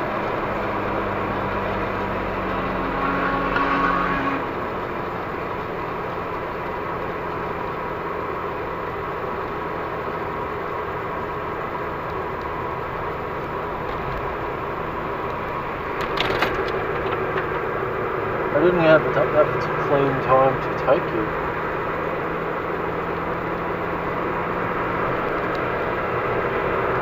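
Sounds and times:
road and tyre noise: 0:00.0 - 0:27.0
crackling clicks: 0:16.0 - 0:17.6.

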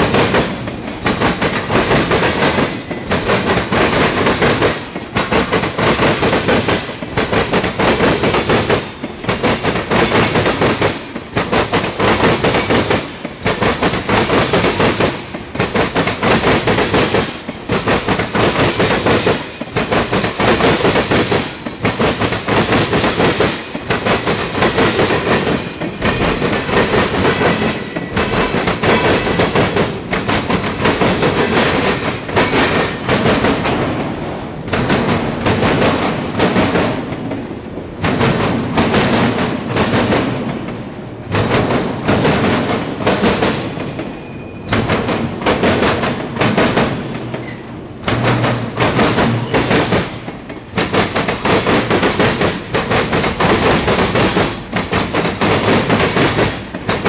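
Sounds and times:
freight train wheels clacking: 0:00.0 - 0:57.0.

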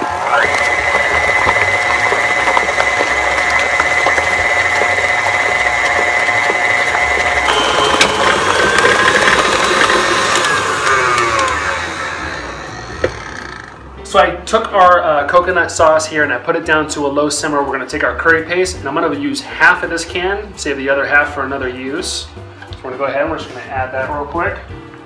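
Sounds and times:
stand mixer motor whine: 0:00.0 - 0:13.8.

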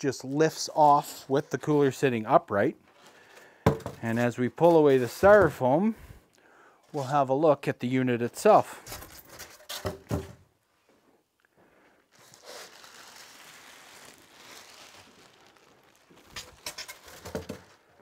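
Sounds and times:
plastic wrapping crinkling: 0:12.1 - 0:18.0
knocks of handled packing: 0:16.6 - 0:17.8.

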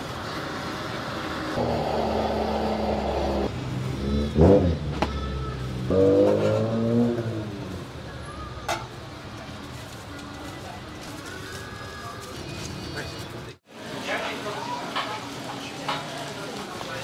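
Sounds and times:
vehicle engine revving: 0:01.6 - 0:07.9.

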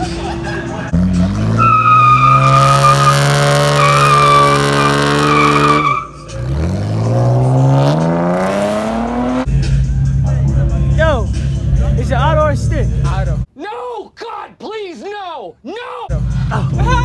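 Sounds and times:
car engine revving: 0:00.0 - 0:12.0
tyres squealing: 0:01.0 - 0:07.0.

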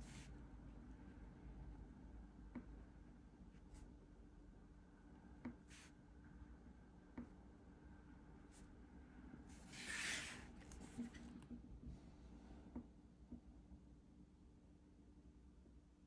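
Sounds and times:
marker drawing on paper: 0:00.0 - 0:00.3, 0:09.5 - 0:11.2
paper sliding across desk: 0:09.5 - 0:11.3.

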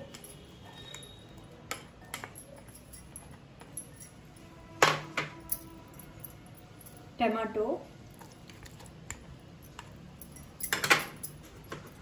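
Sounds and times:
kitchenware clinking: 0:00.0 - 0:06.2, 0:08.6 - 0:12.0.

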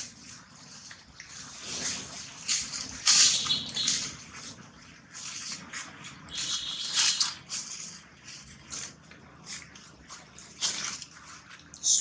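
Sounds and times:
dry leaves crackling: 0:01.6 - 0:04.5, 0:05.2 - 0:09.6.

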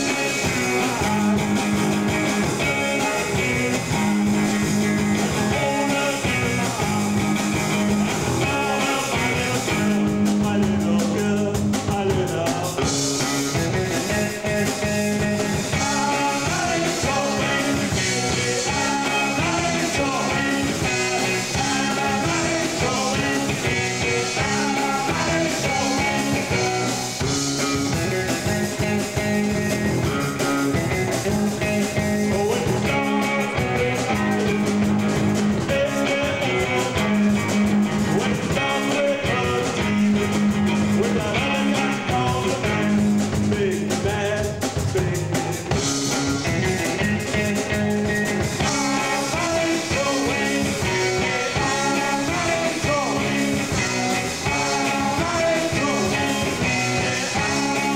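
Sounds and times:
rock band playing: 0:00.0 - 0:57.9.

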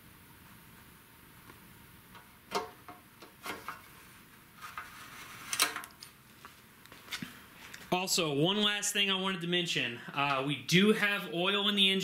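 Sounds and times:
gas can handling knocks: 0:02.5 - 0:03.8.

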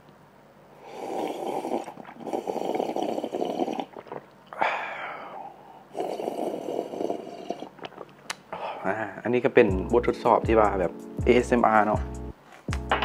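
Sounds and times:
man breathing heavily: 0:04.6 - 0:06.0.

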